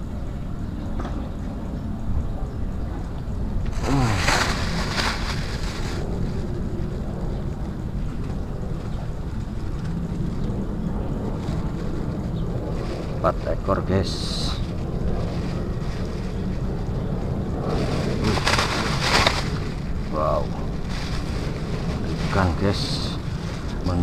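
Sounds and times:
wind buffeting microphone: 0:00.0 - 0:24.0
plastic bag rustling: 0:03.7 - 0:06.6, 0:12.7 - 0:16.9, 0:17.6 - 0:24.0.

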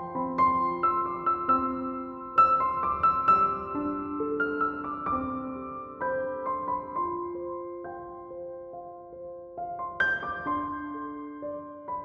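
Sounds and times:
gentle piano music: 0:00.0 - 0:12.0.

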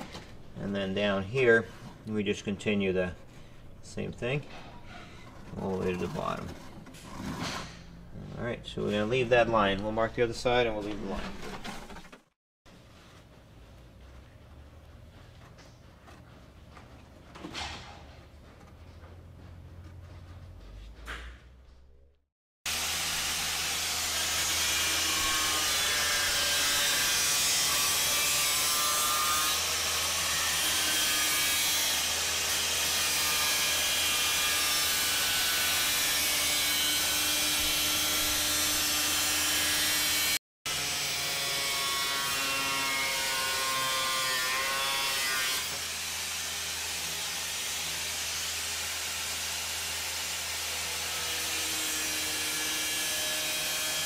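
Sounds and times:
angle grinder cutting: 0:22.7 - 0:54.0.

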